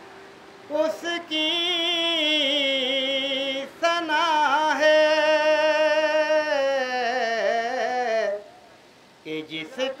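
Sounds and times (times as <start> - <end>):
man singing unaccompanied: 0.6 - 10.0.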